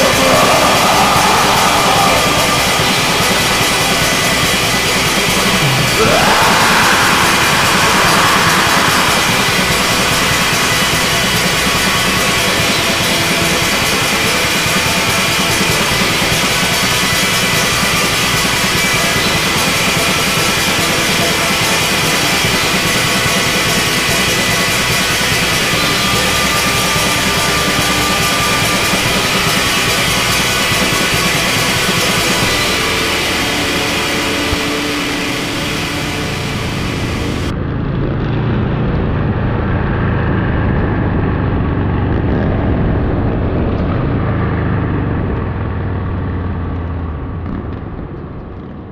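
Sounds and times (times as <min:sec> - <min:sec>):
rock music with drum kit: 0:00.0 - 0:37.5.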